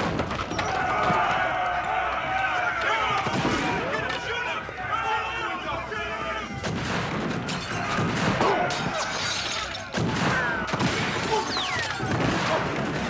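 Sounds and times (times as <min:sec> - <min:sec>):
gunshots: 0:00.0 - 0:01.3, 0:06.6 - 0:13.0
men shouting and crying out: 0:00.5 - 0:13.0.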